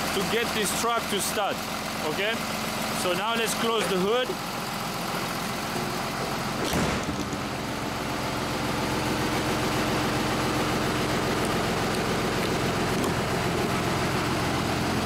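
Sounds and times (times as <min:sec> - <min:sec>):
diesel engine idling: 0:00.0 - 0:15.0
hood closing thump: 0:05.7 - 0:07.4.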